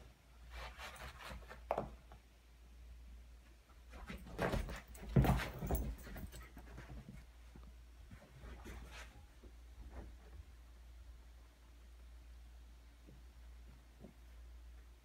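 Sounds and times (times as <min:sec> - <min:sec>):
dogs scuffling on carpet: 0:03.9 - 0:09.2.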